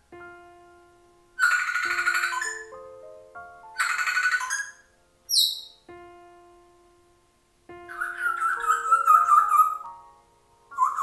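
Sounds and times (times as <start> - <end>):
soft piano background music: 0.0 - 11.0
parrot calling: 1.4 - 2.7, 3.8 - 5.8, 7.9 - 10.0, 10.7 - 11.0.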